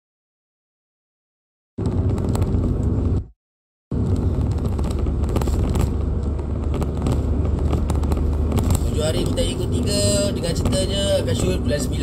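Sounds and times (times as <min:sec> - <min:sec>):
car cabin engine and road noise: 0:01.8 - 0:03.3, 0:03.9 - 0:12.0.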